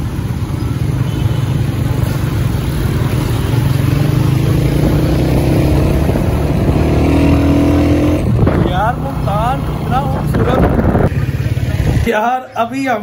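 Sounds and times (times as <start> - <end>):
road traffic engine hum: 0.0 - 13.0
engine speeding up: 1.8 - 12.1.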